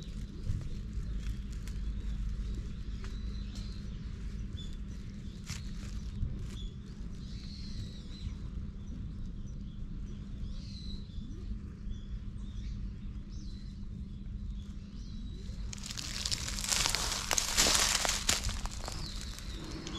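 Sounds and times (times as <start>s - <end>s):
low steady rumble: 0.0s - 19.9s
small birds chirping: 0.0s - 19.9s
footsteps on dry leaves: 5.3s - 6.6s, 15.6s - 19.9s.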